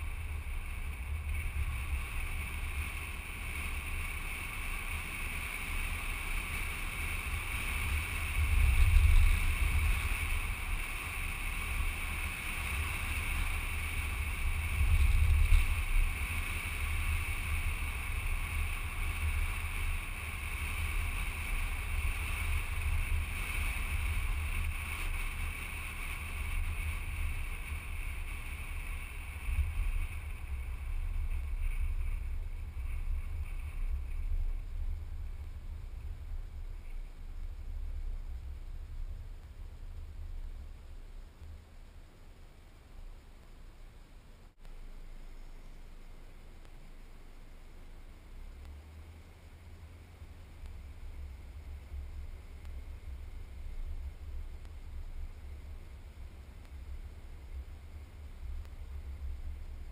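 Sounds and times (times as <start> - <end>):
wind buffeting microphone: 0.0 - 41.2
car running noise: 0.0 - 59.9.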